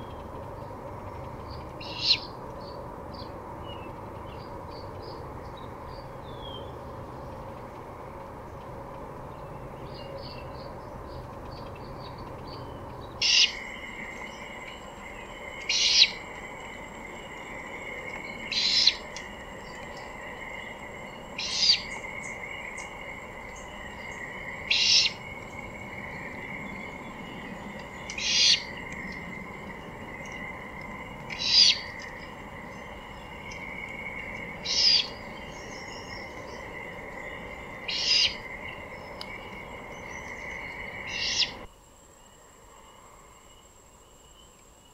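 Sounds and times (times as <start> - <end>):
owl raspy screech: 24.7 - 25.2, 28.2 - 28.7, 31.3 - 31.9.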